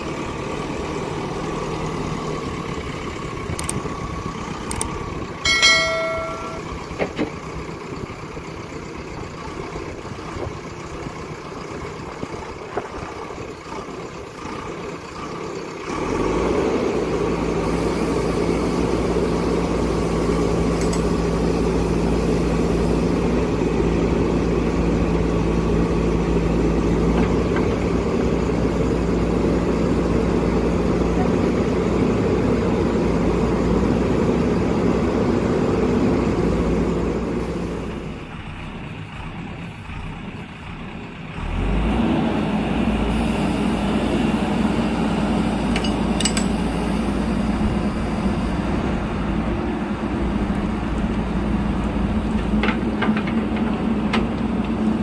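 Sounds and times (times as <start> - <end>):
diesel engine running hard: 0.0 - 55.0
light metal clinks: 5.5 - 6.7, 45.8 - 46.6.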